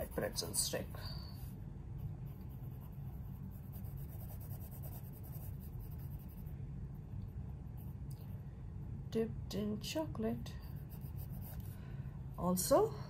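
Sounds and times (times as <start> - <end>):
pencil scratching on paper: 0.0 - 0.7, 2.3 - 6.5, 10.6 - 11.8
steady low hum: 0.0 - 13.0.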